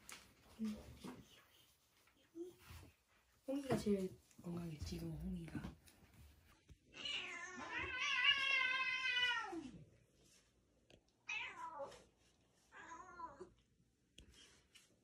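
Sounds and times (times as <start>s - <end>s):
cat meowing: 6.9s - 9.8s, 11.2s - 12.0s.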